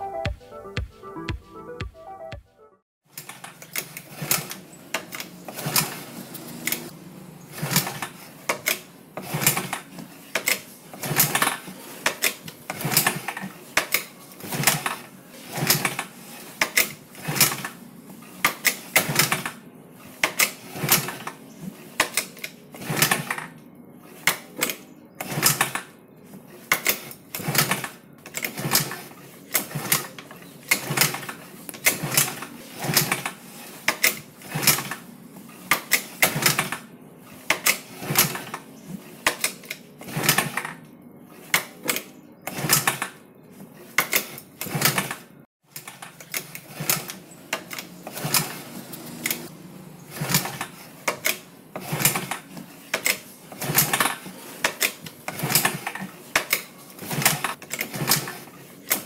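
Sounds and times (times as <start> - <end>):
scooter kick-starter clicking: 26.7 - 35.0, 50.1 - 59.0.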